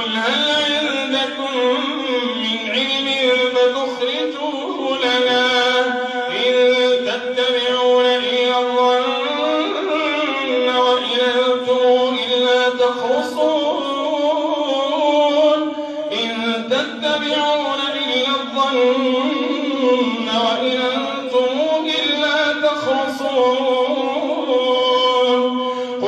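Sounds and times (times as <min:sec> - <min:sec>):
man chanting through a microphone: 0:00.0 - 0:26.0.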